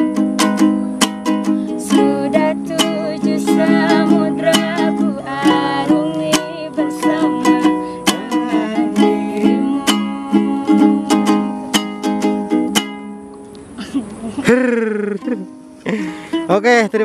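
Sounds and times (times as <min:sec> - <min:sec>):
ukulele strumming: 0:00.0 - 0:13.8, 0:14.4 - 0:17.0
woman singing: 0:01.7 - 0:11.8.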